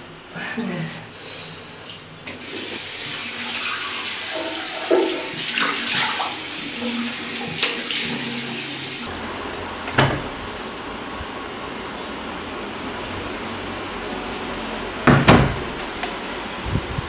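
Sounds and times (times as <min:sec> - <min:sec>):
tap running into basin: 0:02.5 - 0:09.1.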